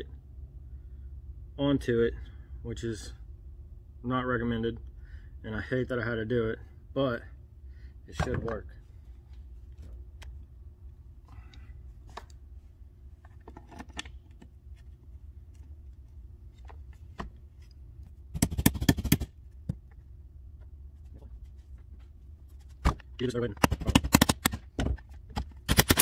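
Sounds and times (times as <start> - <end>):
impact wrench hammering: 18.4 - 19.3, 23.6 - 24.7, 25.4 - 26.0
tools clicking and knocking: 18.4 - 20.0, 23.6 - 26.0.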